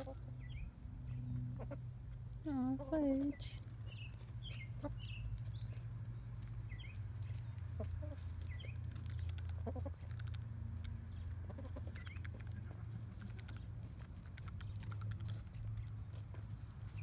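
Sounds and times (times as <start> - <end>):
hens clucking and chirping: 0.0 - 2.2, 2.8 - 17.0
beaks pecking wood: 6.7 - 17.0.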